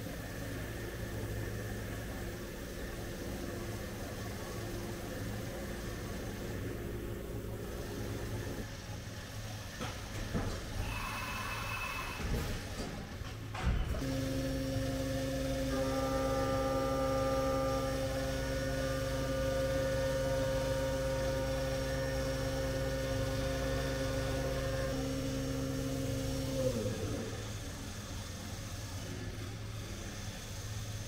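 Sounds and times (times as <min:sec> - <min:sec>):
low machine hum: 0:10.8 - 0:31.0
milling spindle whine: 0:14.0 - 0:27.8.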